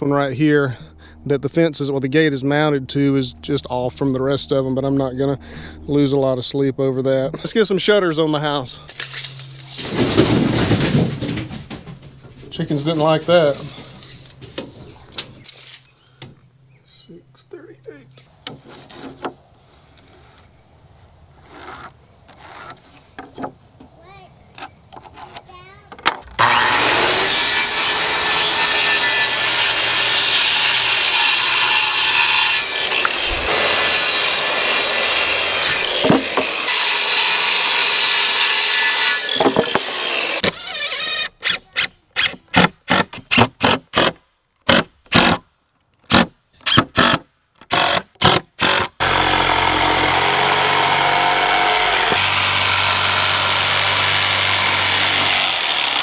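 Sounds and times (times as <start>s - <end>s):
circular saw cutting board: 26.3s - 42.4s, 49.0s - 56.0s
jigsaw cutting board: 26.3s - 45.4s, 46.1s - 56.0s
cordless drill driving screws: 39.3s - 42.3s.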